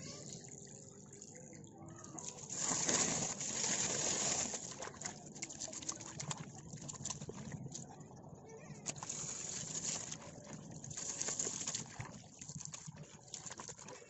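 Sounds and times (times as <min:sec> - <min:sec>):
water splashes and drips: 0:00.0 - 0:08.1, 0:08.8 - 0:14.0
water rushing from hose: 0:02.2 - 0:07.3, 0:08.9 - 0:14.0.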